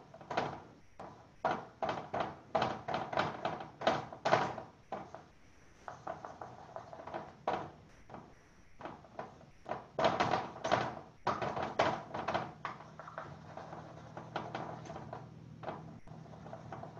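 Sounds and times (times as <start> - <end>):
pencil scratching on paper: 12.7 - 15.1, 15.7 - 16.9.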